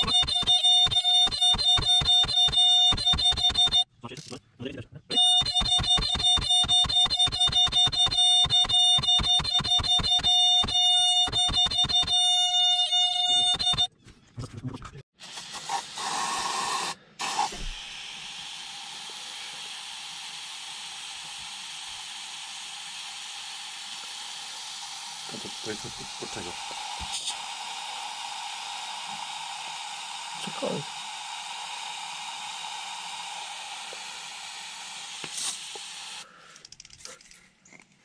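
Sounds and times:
aerosol spray can hissing: 15.2 - 36.2.

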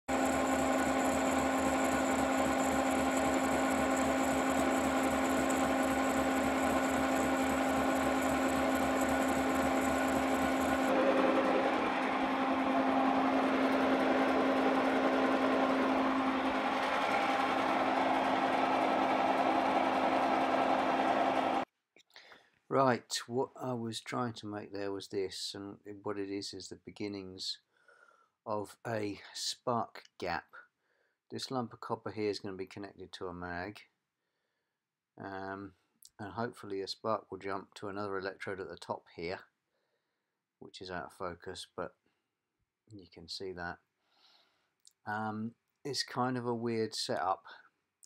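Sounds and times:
milling machine hum: 0.1 - 21.6
saw cutting metal: 0.1 - 21.6.

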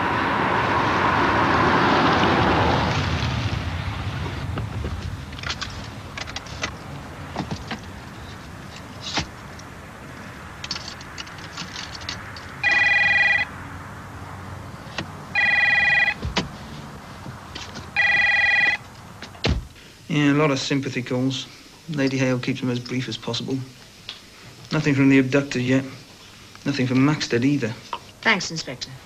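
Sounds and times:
telephone ringing: 12.6 - 13.5, 15.3 - 16.2, 17.9 - 18.8.

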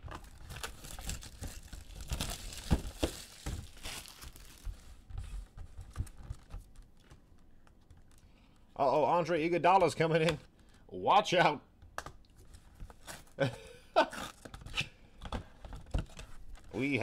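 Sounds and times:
packaging crinkling and tearing: 0.0 - 5.0.

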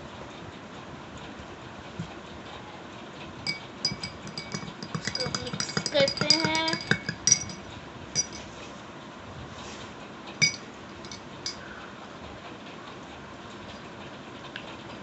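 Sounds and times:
spoon clinking against glass: 3.5 - 8.5, 10.4 - 11.6.

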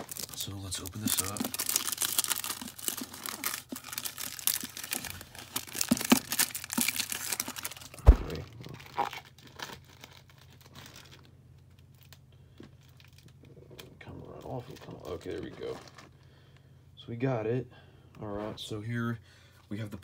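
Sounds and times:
packaging crinkling: 0.0 - 13.4
loud thump: 8.0 - 8.4.

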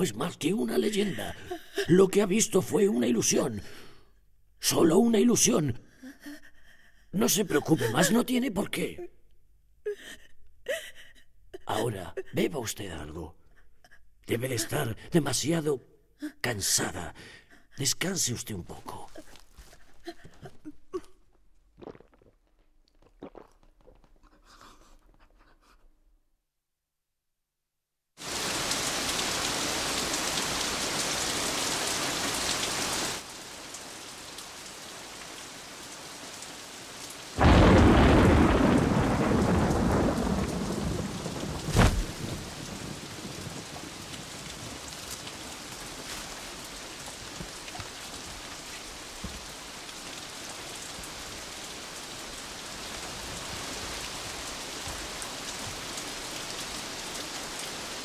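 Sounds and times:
heavy rain: 0.0 - 3.8, 4.6 - 8.8, 28.2 - 58.0
sharp thunder crack: 37.4 - 43.6
thunderclap rumbling: 37.4 - 44.3.

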